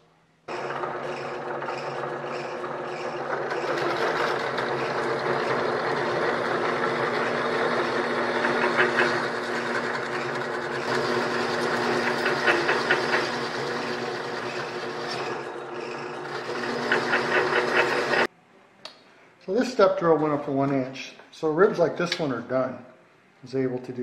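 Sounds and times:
milling machine drilling metal: 0.5s - 18.3s.

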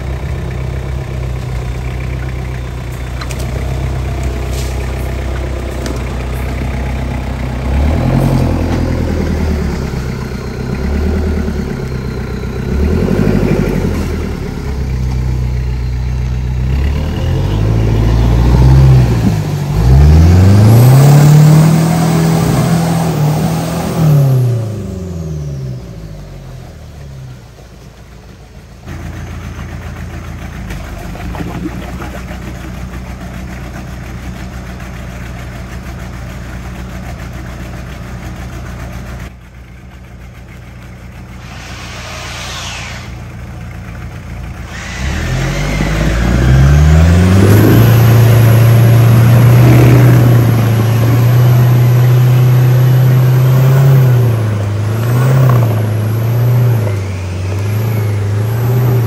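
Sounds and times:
pickup truck engine revving: 5.3s - 25.7s, 44.5s - 59.0s.

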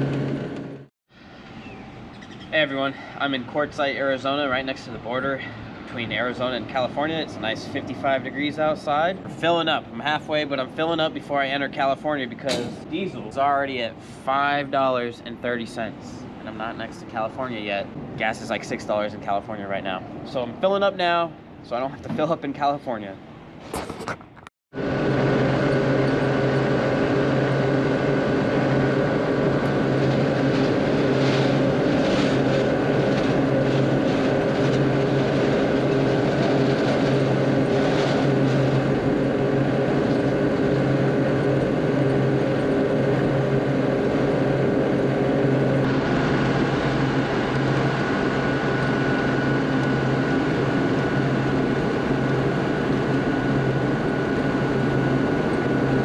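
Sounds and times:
diesel truck engine drone: 0.0s - 2.2s, 23.8s - 56.0s.

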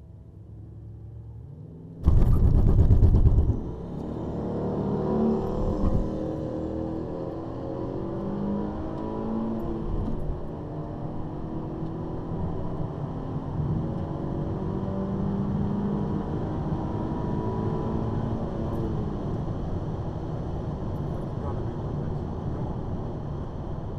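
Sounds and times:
car engine accelerating hard: 2.0s - 19.7s.

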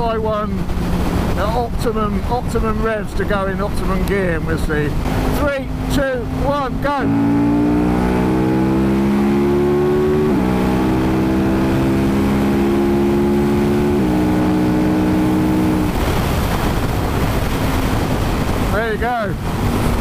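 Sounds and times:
wind rushing over microphone: 0.0s - 20.0s
motorcycle engine revving hard: 5.0s - 18.7s.

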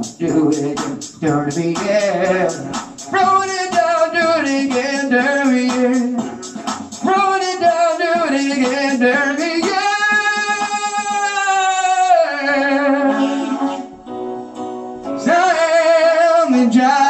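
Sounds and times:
man singing into microphone: 0.0s - 6.4s, 7.0s - 13.9s, 15.1s - 17.0s
backing music: 0.0s - 17.0s.

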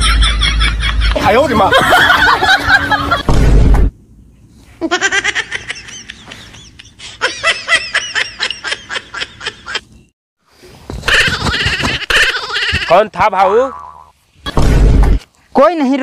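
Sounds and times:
rapid laughter: 0.0s - 3.2s, 4.8s - 9.9s, 11.0s - 13.1s.

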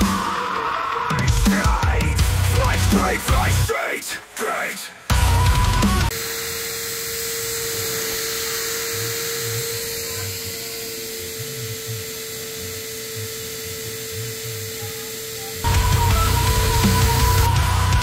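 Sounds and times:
vacuum cleaner running: 0.0s - 3.3s, 5.1s - 18.0s
music: 0.0s - 6.1s, 14.5s - 18.0s.

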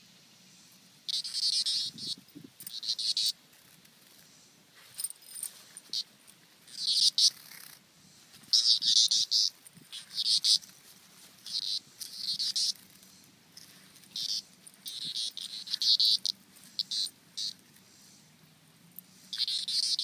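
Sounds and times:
insect buzzing in high-pitched bursts: 0.5s - 3.4s, 6.7s - 7.8s, 8.5s - 10.7s, 11.4s - 13.2s, 14.0s - 17.6s, 19.1s - 20.0s.

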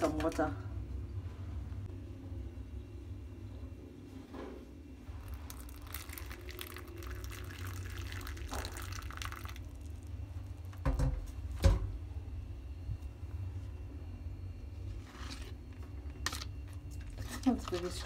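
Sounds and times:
water pouring into bowl: 5.2s - 10.2s.

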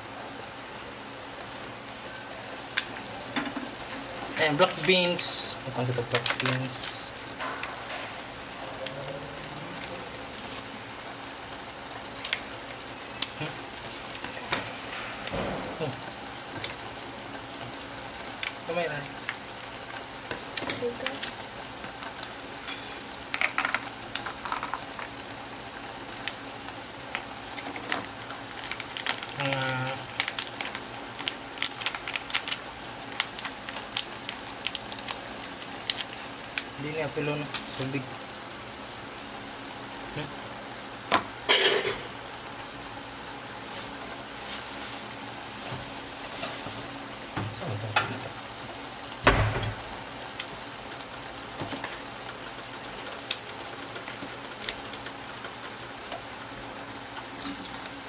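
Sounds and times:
pot simmering and sizzling: 0.0s - 58.0s.

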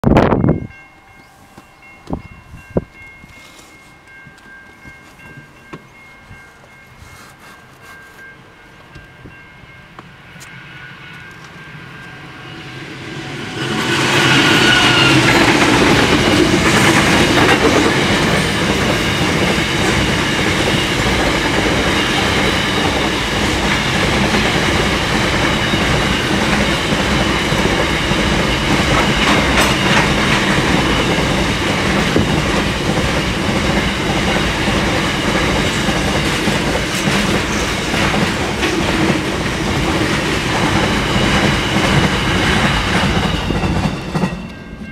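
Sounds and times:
diesel locomotives passing: 0.0s - 44.9s
train wheels clattering on rails: 13.3s - 44.9s.

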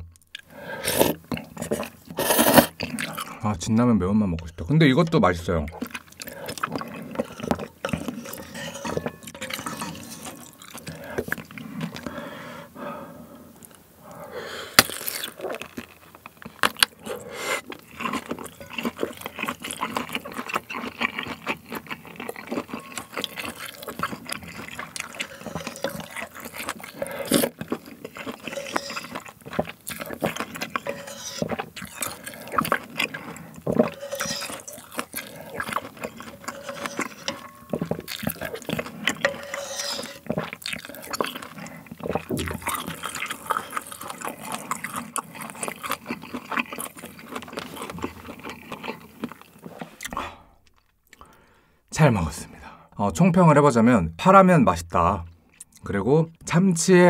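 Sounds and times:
spoon scraping and tapping bowl: 7.2s - 10.6s, 28.4s - 31.6s, 33.7s - 35.1s, 35.7s - 40.6s.

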